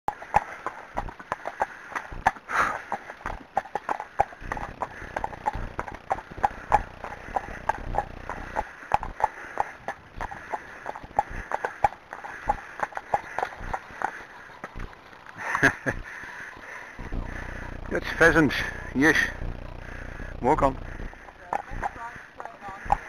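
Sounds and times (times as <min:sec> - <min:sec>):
hooves clip-clopping on tarmac: 0:00.1 - 0:23.0
low rumble: 0:17.0 - 0:22.0.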